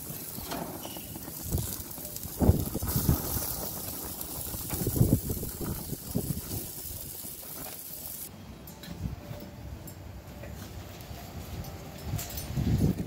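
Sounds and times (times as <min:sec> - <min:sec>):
food sizzling on a grill: 0:00.0 - 0:08.3.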